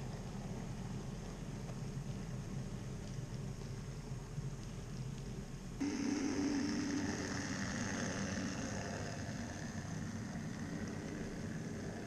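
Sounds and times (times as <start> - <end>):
electric motor hum: 5.8 - 12.0
model train wheels rumbling on track: 5.8 - 12.0.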